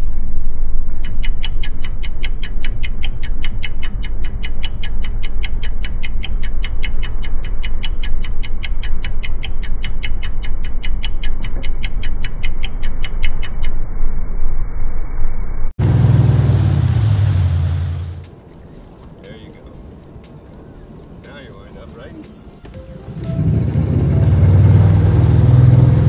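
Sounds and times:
fast even ticking: 0:01.0 - 0:13.8, 0:18.2 - 0:22.4
water: 0:16.0 - 0:18.3.

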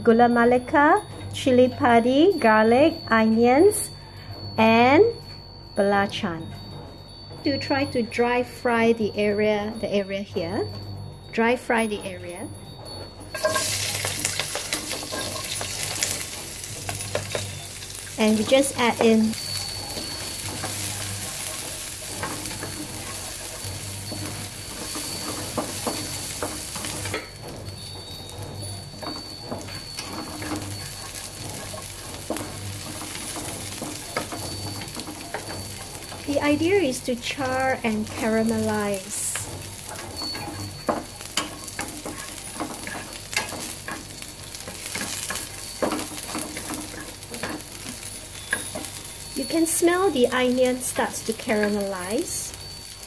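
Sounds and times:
food sizzling in hot oil: 0:13.3 - 0:53.0
wooden spatula scraping wok: 0:13.3 - 0:53.0.

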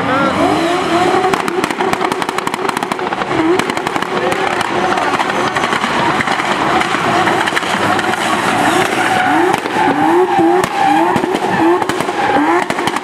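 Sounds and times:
car engine revving high: 0:00.0 - 0:13.0
tyres squealing: 0:04.5 - 0:12.7.

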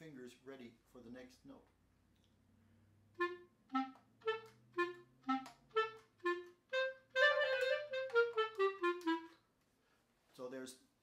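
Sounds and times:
clarinet staccato notes: 0:03.2 - 0:09.4.

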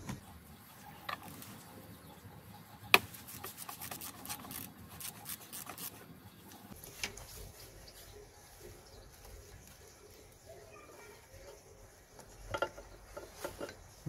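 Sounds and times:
rubbing: 0:03.1 - 0:06.0.

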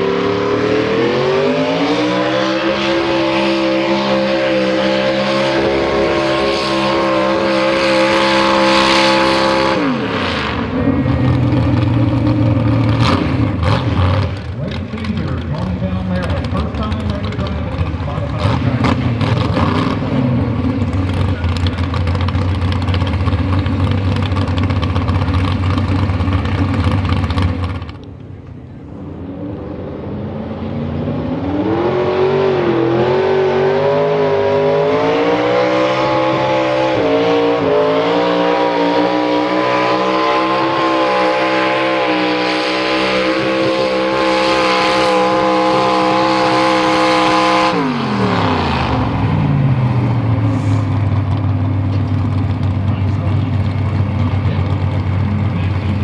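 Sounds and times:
tractor engine at full throttle: 0:00.0 - 0:56.0
tractor engine running steadily: 0:09.8 - 0:29.2, 0:47.8 - 0:56.0.

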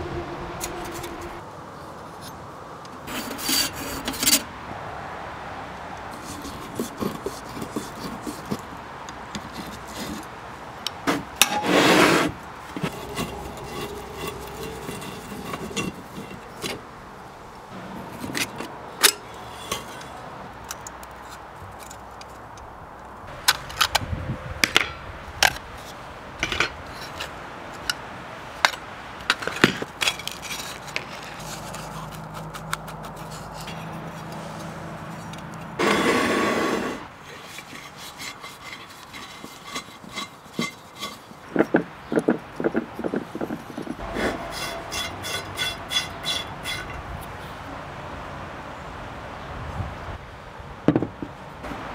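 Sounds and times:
metal parts clinking and scraping: 0:12.7 - 0:16.9, 0:18.1 - 0:22.4, 0:29.3 - 0:35.5, 0:43.6 - 0:47.0.

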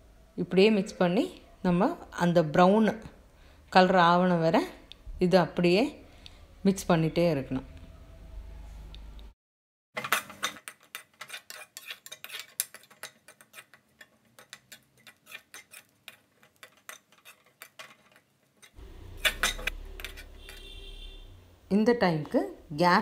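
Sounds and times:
spoon scraping a metal pan: 0:10.0 - 0:21.2.

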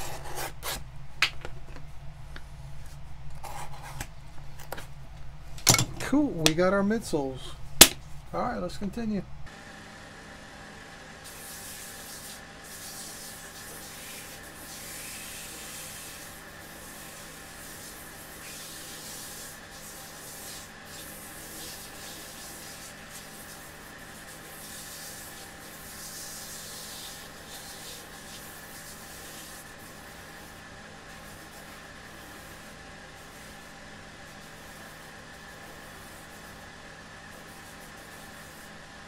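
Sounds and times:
leather sanding hiss: 0:11.2 - 0:33.7, 0:37.3 - 0:38.8.

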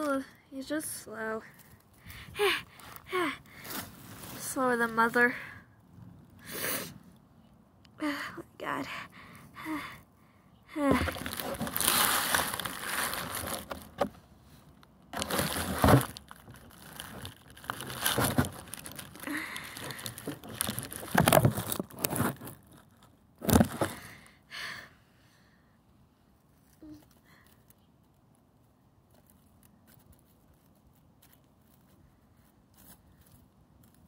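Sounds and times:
dry grass and leaves rustling: 0:01.4 - 0:05.2, 0:10.8 - 0:24.0, 0:26.3 - 0:34.0.

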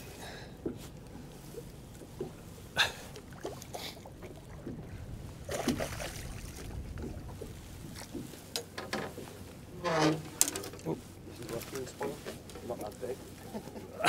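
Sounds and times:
water lapping against boat hull: 0:00.0 - 0:14.0
short splashes: 0:02.8 - 0:08.4
wind on microphone: 0:04.6 - 0:08.3.

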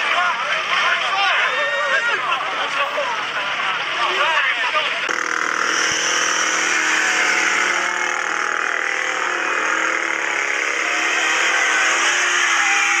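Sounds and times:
motorcycle engine revving: 0:05.0 - 0:13.0.

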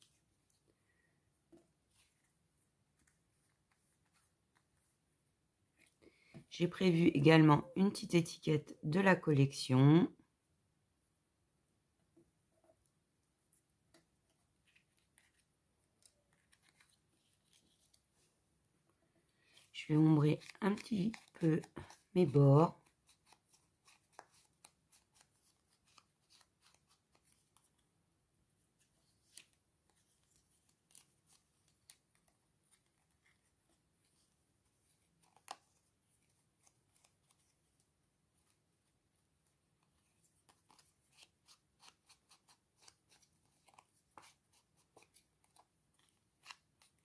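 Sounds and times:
soft scratching on paper: 0:01.8 - 0:05.0, 0:13.4 - 0:15.6, 0:16.3 - 0:18.4, 0:28.6 - 0:38.6.

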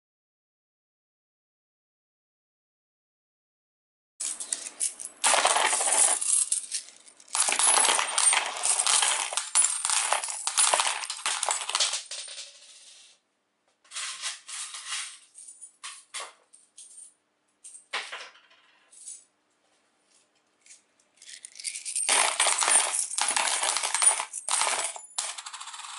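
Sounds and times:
coins clattering onto glass: 0:04.2 - 0:13.1, 0:13.9 - 0:16.2, 0:21.2 - 0:25.9.

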